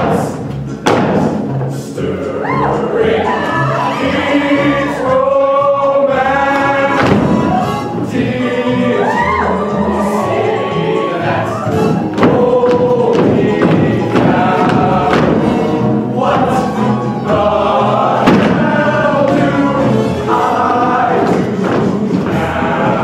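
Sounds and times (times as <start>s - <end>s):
ensemble singing in chorus: 0.0s - 23.0s
sharp thumps: 18.2s - 19.5s.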